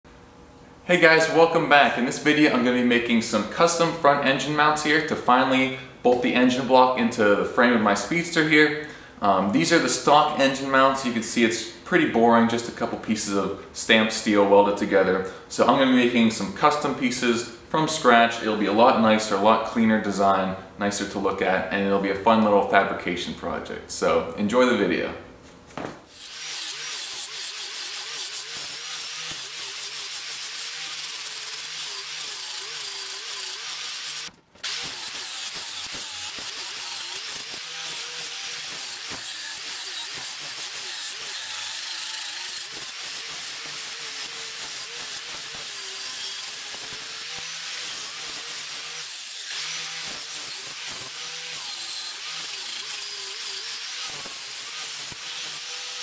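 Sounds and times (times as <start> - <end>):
angle grinder cutting steel: 26.1 - 56.0.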